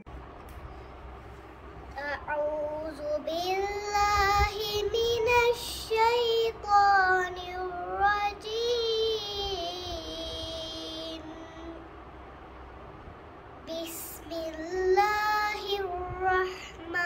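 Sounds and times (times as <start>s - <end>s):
girl chanting melodically: 13.7s - 17.0s.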